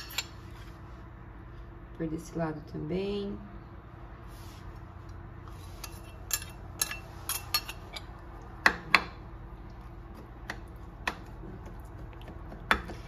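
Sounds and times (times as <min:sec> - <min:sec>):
utensil clinking against dish: 0:05.8 - 0:08.1.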